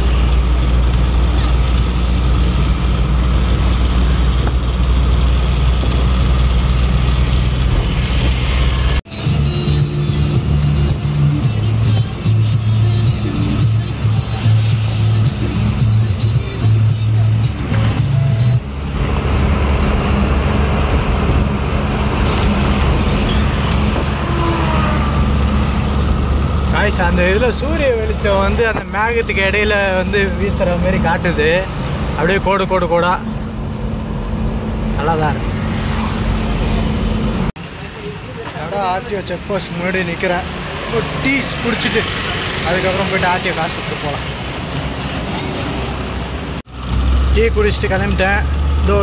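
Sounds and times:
diesel engine droning: 0:00.0 - 0:49.0
road and tyre noise: 0:00.0 - 0:49.0.

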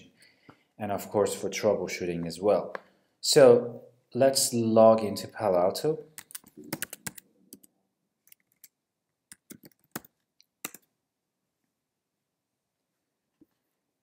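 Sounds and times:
computer keyboard typing: 0:06.2 - 0:07.7, 0:08.3 - 0:10.9.

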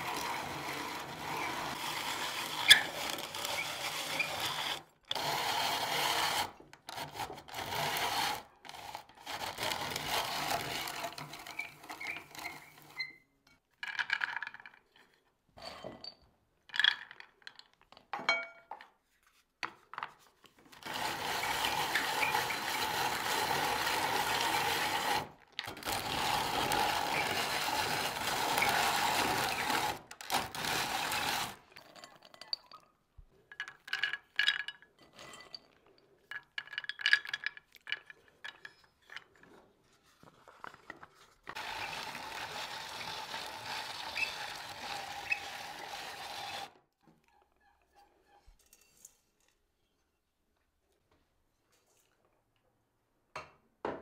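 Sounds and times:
drum grater grinding nuts: 0:00.0 - 0:13.2, 0:20.7 - 0:31.7, 0:41.5 - 0:46.8.

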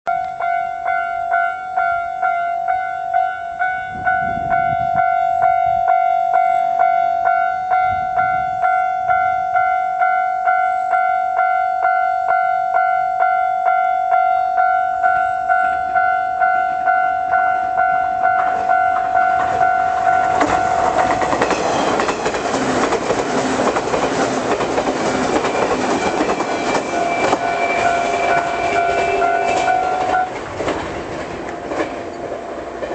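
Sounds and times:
level crossing bell ringing: 0:00.1 - 0:21.3, 0:26.9 - 0:30.3
electric train passing: 0:00.1 - 0:32.9.

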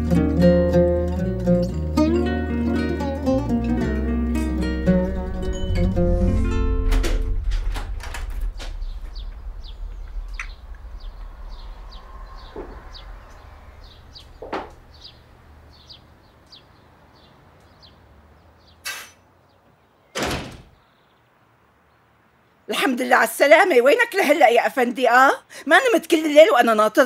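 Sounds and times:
background music: 0:00.0 - 0:07.7
door banging shut: 0:06.4 - 0:10.7, 0:14.2 - 0:15.2, 0:20.1 - 0:20.8
bird chirping: 0:07.3 - 0:20.2, 0:20.8 - 0:22.1.

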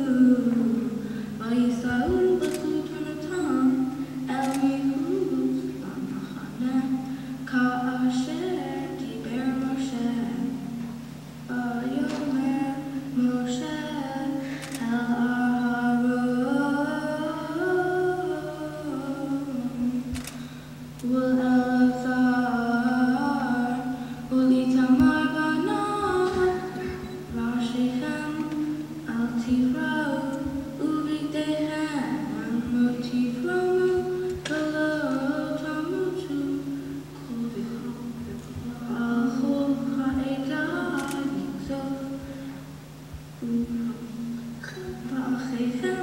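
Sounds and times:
girl chanting: 0:00.0 - 0:10.7, 0:21.1 - 0:42.4, 0:43.4 - 0:46.0
low electrical hum: 0:00.0 - 0:46.0.

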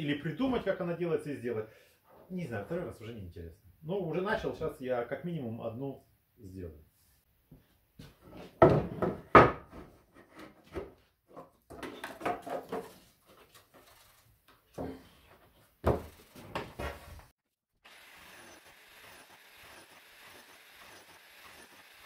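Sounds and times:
wood knocking and scraping on wood: 0:07.5 - 0:13.9, 0:14.5 - 0:17.3.

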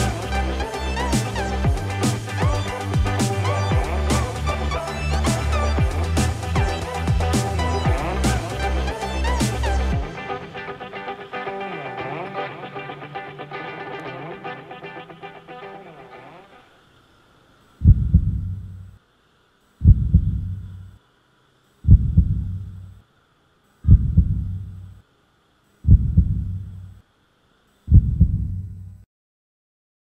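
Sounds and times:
faint steady hum: 0:00.0 - 0:29.1
heartbeat double thuds: 0:17.8 - 0:18.8, 0:19.8 - 0:20.8, 0:21.8 - 0:22.9, 0:23.9 - 0:24.9, 0:25.8 - 0:26.9, 0:27.9 - 0:28.8.

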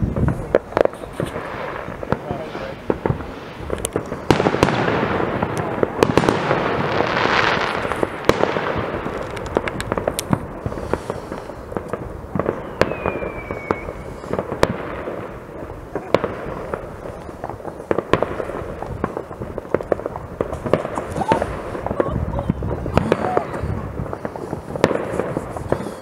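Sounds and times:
distant firework bangs: 0:00.0 - 0:26.0
firework crackling: 0:00.0 - 0:26.0
sharp nearer firework reports: 0:00.0 - 0:26.0
falling firework whistle: 0:12.4 - 0:14.7.

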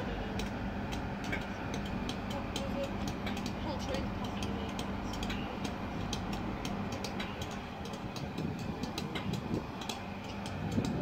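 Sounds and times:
locomotive low hum: 0:00.0 - 0:11.0.

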